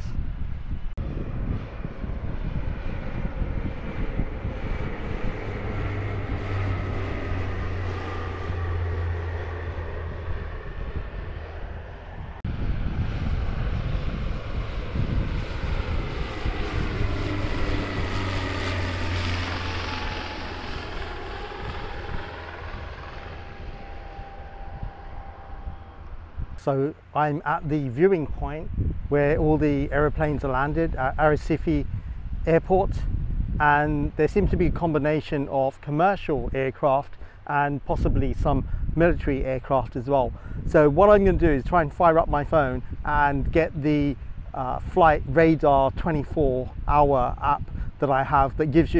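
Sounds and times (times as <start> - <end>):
plane engines roaring: 0.0 - 48.9
whining engine tones falling: 15.4 - 26.6.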